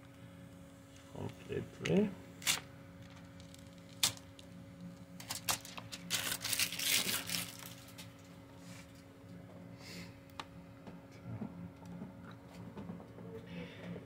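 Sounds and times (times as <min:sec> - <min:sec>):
faint steady hum: 0:00.0 - 0:14.0
plastic film crinkling: 0:05.2 - 0:08.2.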